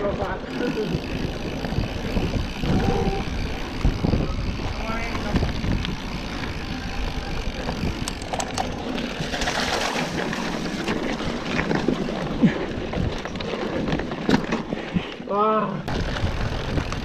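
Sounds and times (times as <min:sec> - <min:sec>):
wind noise on microphone: 0:00.0 - 0:10.3, 0:15.9 - 0:17.0
bike rattling: 0:00.0 - 0:17.0
tyres over dirt and stones: 0:03.3 - 0:15.3.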